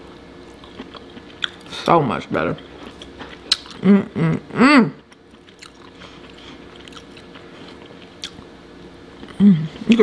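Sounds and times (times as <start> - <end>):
person humming mmm: 3.8 - 5.1, 9.3 - 10.0.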